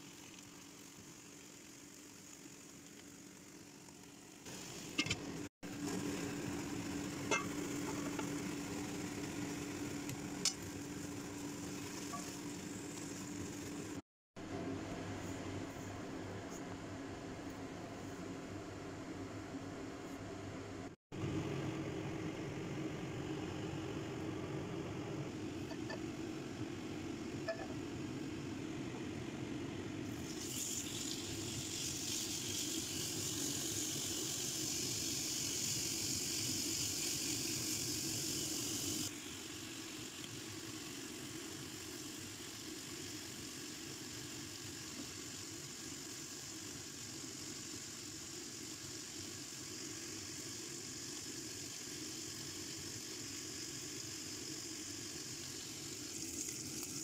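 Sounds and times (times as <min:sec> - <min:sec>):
meat sizzling in hot oil: 0:00.0 - 0:14.0, 0:30.0 - 0:57.0.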